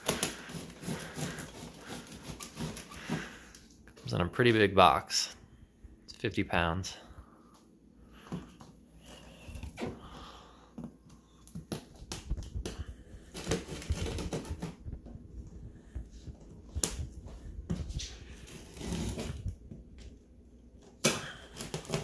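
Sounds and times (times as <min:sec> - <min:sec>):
knife cutting plastic wrap: 0:00.0 - 0:03.4, 0:13.3 - 0:14.8, 0:18.3 - 0:19.5, 0:21.0 - 0:22.0.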